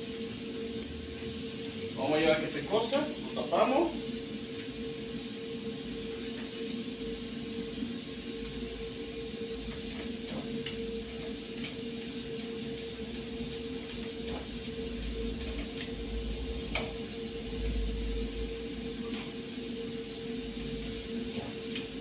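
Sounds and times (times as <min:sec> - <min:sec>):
gas stove hissing: 0:00.0 - 0:22.0
pans and knobs clicking: 0:09.6 - 0:17.2.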